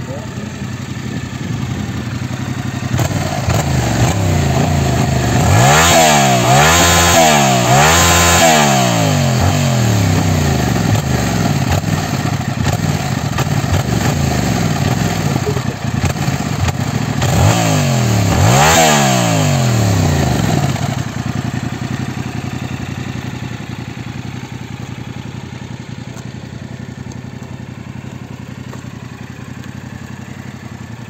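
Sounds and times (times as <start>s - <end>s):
motorcycle engine idling: 0.0s - 6.6s, 8.6s - 18.4s, 19.3s - 31.0s
motorcycle engine revving: 0.0s - 31.0s.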